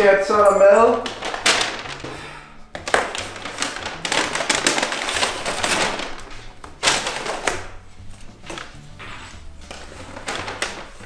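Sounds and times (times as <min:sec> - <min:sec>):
paper bag rustling and crinkling: 0:00.0 - 0:11.0.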